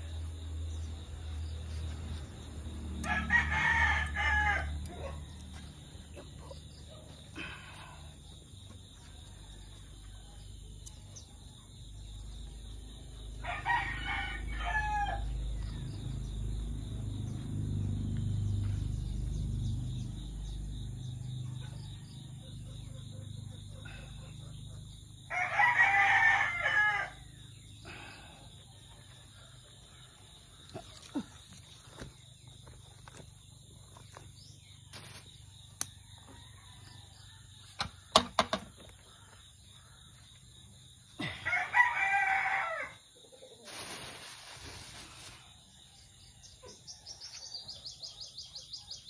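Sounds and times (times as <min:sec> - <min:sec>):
rooster crowing: 0:03.0 - 0:05.2, 0:13.4 - 0:16.0, 0:25.2 - 0:28.2, 0:36.0 - 0:37.8, 0:41.2 - 0:43.1.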